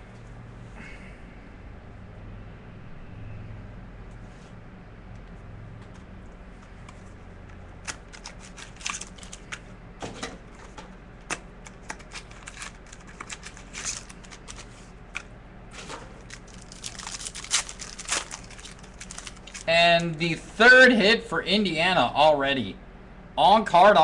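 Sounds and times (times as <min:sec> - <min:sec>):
card packaging crinkling: 0:07.8 - 0:09.7, 0:11.2 - 0:20.2.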